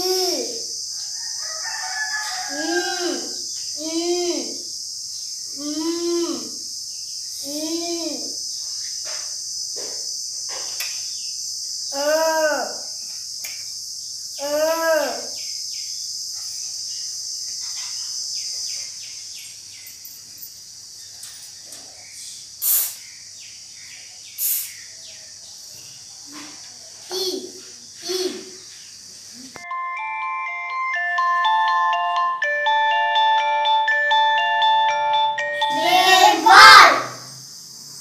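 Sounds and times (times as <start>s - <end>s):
crickets chirring: 0.0s - 30.1s, 30.9s - 38.0s
rising and falling calls: 35.0s - 37.3s.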